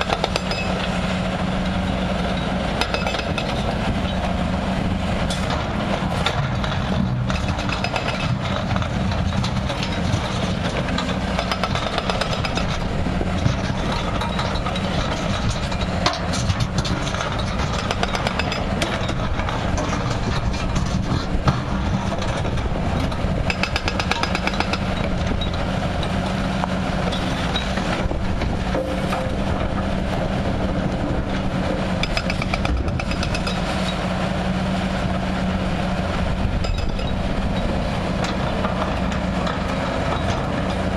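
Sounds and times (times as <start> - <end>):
hydraulic breaker hammering rock: 0.0 - 1.0, 2.4 - 4.3, 5.3 - 34.2
excavator diesel engines: 0.0 - 40.9.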